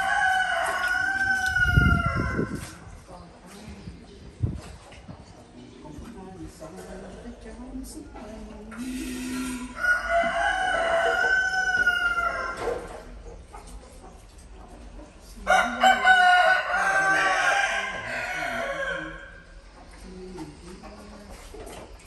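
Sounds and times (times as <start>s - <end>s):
rooster crowing: 0.0s - 2.6s, 9.4s - 12.9s, 15.5s - 19.4s.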